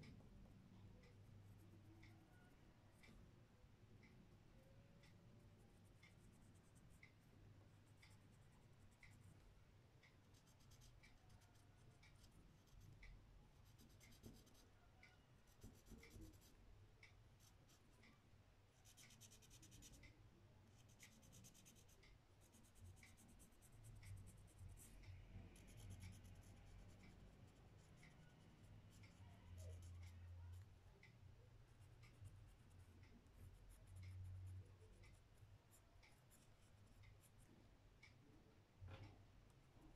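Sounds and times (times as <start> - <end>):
faint regular ticking: 0.0 - 39.9
pencil scratching on paper: 13.6 - 14.6, 15.5 - 16.5, 18.8 - 20.0, 20.8 - 25.0, 28.9 - 30.7.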